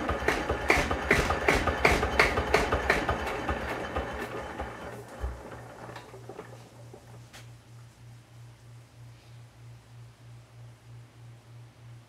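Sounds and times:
faint low pulsing hum: 6.5 - 12.0.

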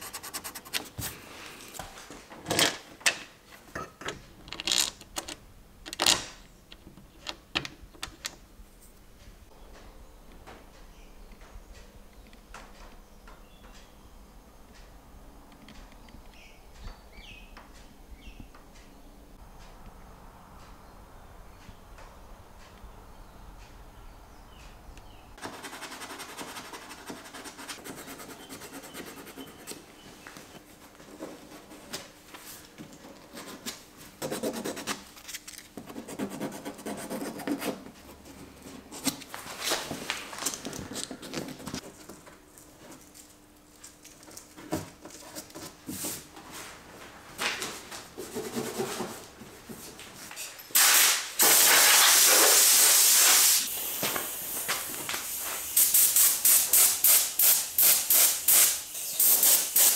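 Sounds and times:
hand sanding a panel: 0.0 - 1.2, 25.4 - 29.8
compressed air hiss: 50.8 - 59.9.

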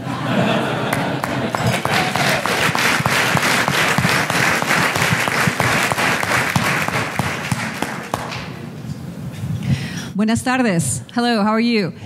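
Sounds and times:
audience applauding: 0.4 - 8.6.

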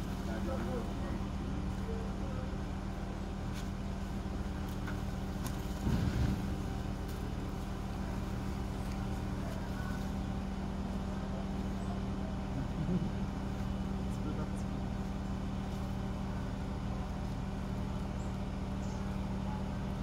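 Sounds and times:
crane engine running: 0.0 - 20.0
low bump: 5.5 - 7.4.

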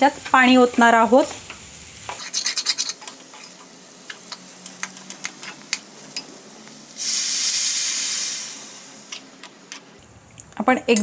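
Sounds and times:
water hissing in hot pan: 0.0 - 10.0
spoon scraping a metal pan: 2.1 - 6.3.

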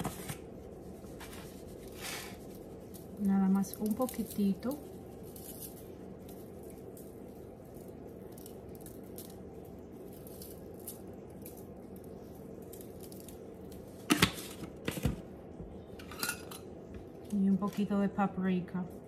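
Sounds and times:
steady low hum: 0.0 - 19.0
cheese grains pattering from shaker: 0.5 - 14.0.

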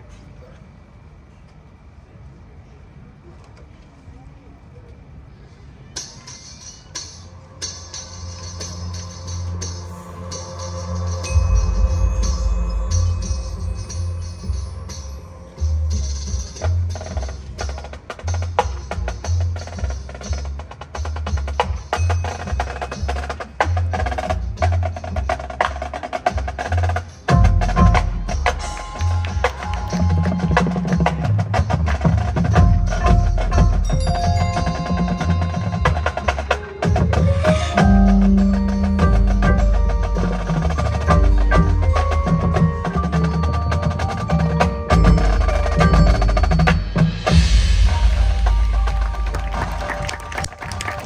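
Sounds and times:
marching band percussion: 6.0 - 51.0
melodic brass lines: 8.2 - 16.0, 43.6 - 51.0
held low bass notes: 8.8 - 20.6, 27.3 - 51.0.

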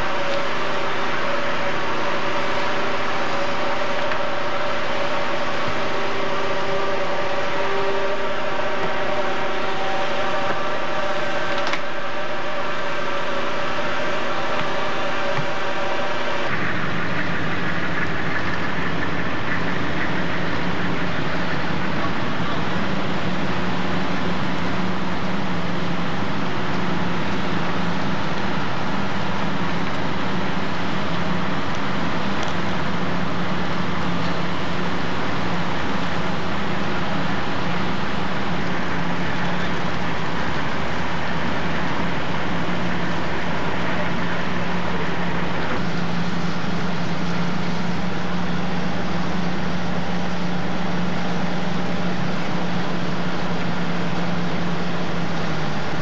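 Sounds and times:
diesel engines running: 0.0 - 56.0.

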